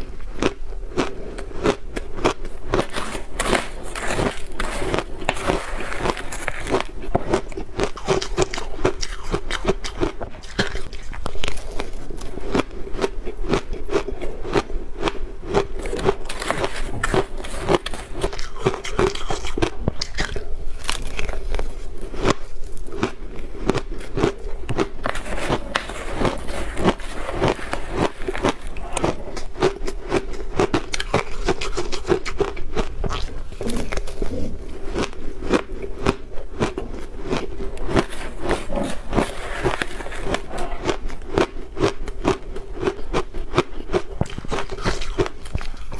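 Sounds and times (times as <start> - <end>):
chewing crunchy ice: 0.0 - 45.9
metal spoon scraping ice: 2.8 - 7.1, 15.8 - 19.5, 25.0 - 29.5, 37.6 - 41.0.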